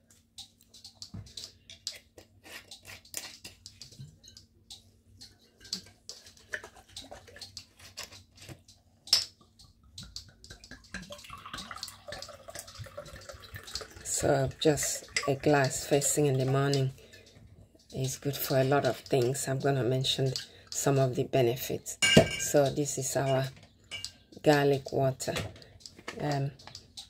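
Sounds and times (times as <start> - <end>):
liquid pouring into a glass: 10.8 - 15.6
glass bottle clicking and tapping: 23.9 - 24.2.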